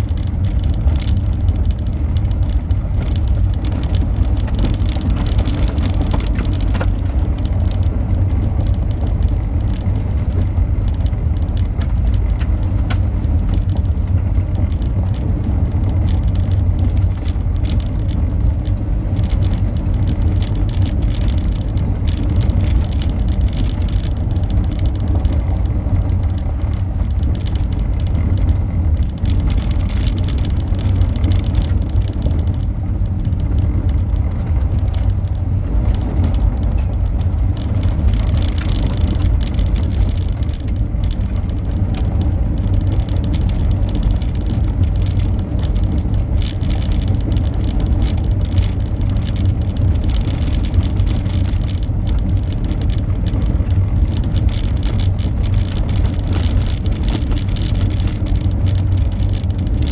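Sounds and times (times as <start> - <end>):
car engine rumble: 0.0 - 59.9
small clicks and rattles: 0.0 - 59.9
tyres on loose gravel: 0.0 - 59.9.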